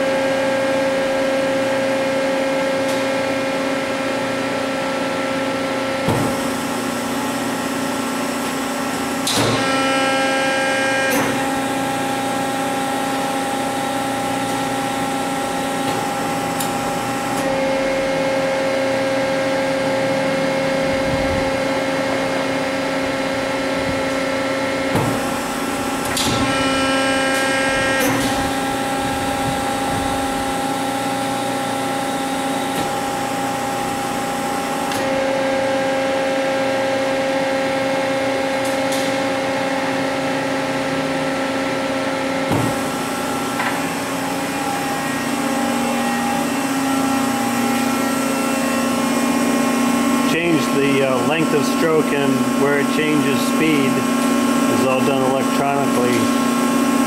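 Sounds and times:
hydraulic pump humming: 0.0 - 57.0.

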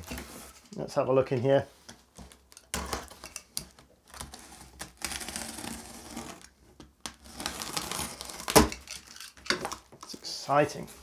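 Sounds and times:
knife slitting tape on cardboard: 2.3 - 9.8.

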